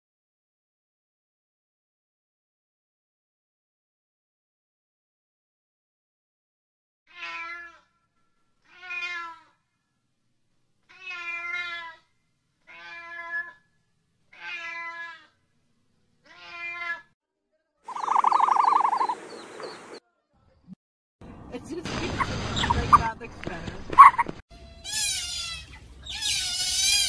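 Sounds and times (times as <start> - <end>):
cat meowing: 7.1 - 7.9, 8.6 - 9.6, 10.9 - 12.0, 12.7 - 13.6, 14.3 - 15.4, 16.2 - 17.2
loud harsh animal sound: 17.9 - 19.4, 24.0 - 27.0.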